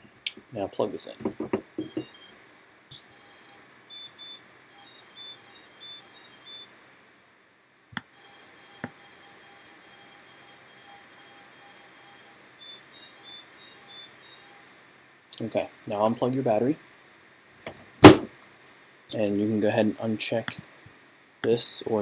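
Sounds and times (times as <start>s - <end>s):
motor beeps: 1.8s - 2.4s, 3.0s - 6.7s, 8.1s - 14.7s
long high tone: 3.1s - 6.8s, 8.2s - 14.7s.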